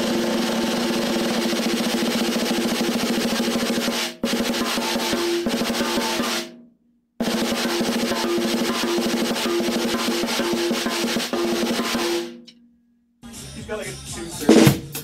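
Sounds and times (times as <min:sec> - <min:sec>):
snare drum roll: 0:00.0 - 0:06.6, 0:07.2 - 0:12.5.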